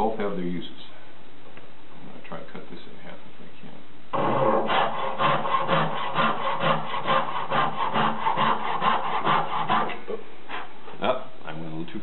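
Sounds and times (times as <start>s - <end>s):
hand saw sawing wood: 4.2s - 10.7s.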